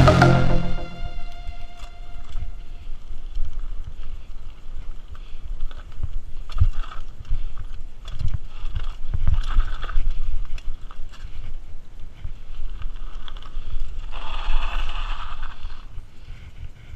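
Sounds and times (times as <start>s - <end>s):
mountain bike rattling over rocks: 3.4s - 15.9s.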